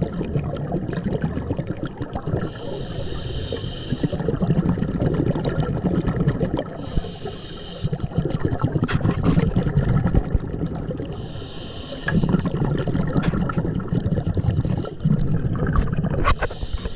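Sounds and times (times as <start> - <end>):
bubbling of exhaled breath: 0.0 - 16.9
diver breathing in underwater: 2.1 - 5.0, 5.9 - 8.7, 11.0 - 16.9.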